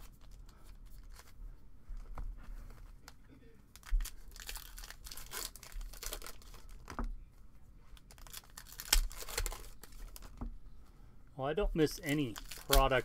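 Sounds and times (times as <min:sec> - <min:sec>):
foil wrapper tearing and crinkling: 0:03.8 - 0:06.8, 0:08.0 - 0:10.4, 0:11.9 - 0:13.0.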